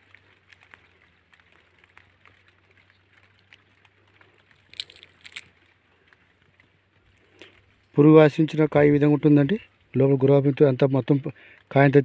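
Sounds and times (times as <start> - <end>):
cotton boll crackling pulled apart: 0.0 - 7.9.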